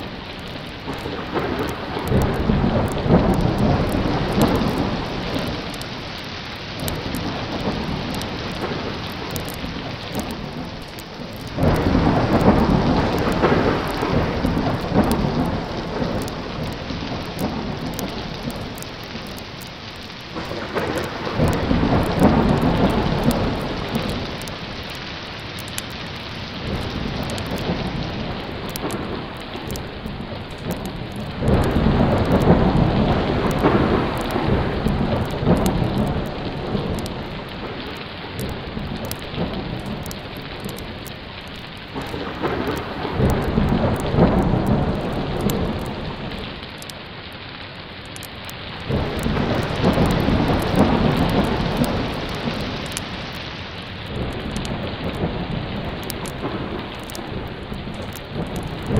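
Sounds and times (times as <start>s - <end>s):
thunder rolling: 0.0s - 47.0s, 48.8s - 58.9s
heavy rain falling: 0.0s - 58.9s.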